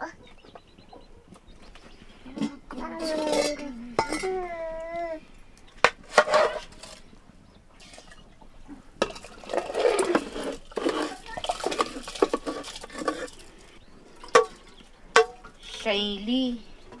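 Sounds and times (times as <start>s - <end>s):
metal spoon scraping pot: 2.3s - 4.6s, 6.0s - 7.1s, 9.0s - 16.0s.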